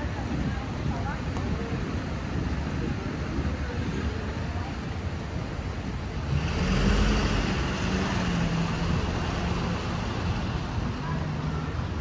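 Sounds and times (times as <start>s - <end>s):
street traffic: 0.0s - 12.0s
vehicle engine passing by: 6.2s - 11.7s.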